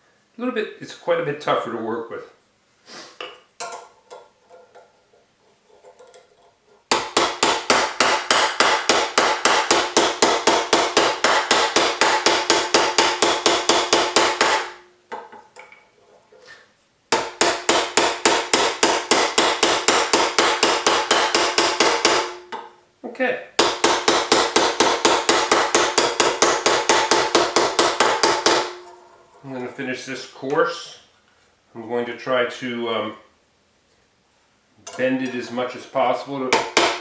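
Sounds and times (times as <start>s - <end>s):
hammer beating on metal: 6.9s - 14.8s, 17.1s - 22.6s, 23.6s - 28.8s, 36.5s - 37.0s.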